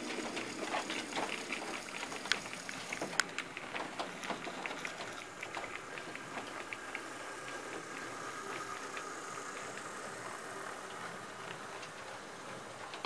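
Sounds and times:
model locomotive motor whine: 0.0 - 13.0
model train wheels clicking: 0.0 - 13.0.

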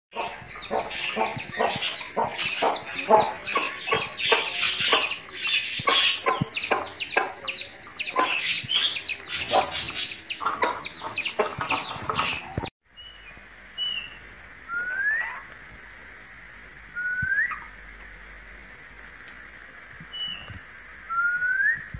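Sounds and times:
chicks peeping: 0.1 - 12.7
budgerigar whistling: 0.2 - 11.7, 13.8 - 15.5, 17.0 - 17.8, 21.1 - 21.9.

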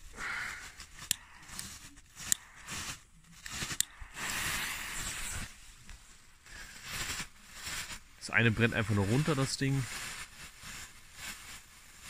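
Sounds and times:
fireworks hissing: 0.0 - 12.0
firework cracks: 6.4 - 12.0.

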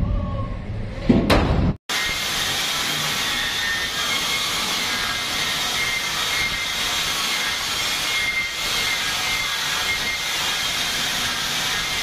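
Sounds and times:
steel cutting hiss: 1.9 - 12.0.

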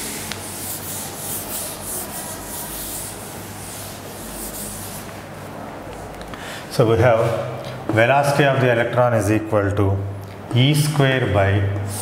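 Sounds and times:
duster wiping chalkboard: 0.0 - 5.3.

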